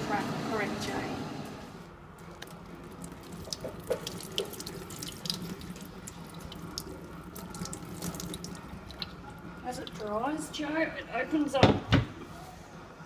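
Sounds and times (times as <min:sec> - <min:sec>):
water pouring and splashing: 0:02.2 - 0:10.2.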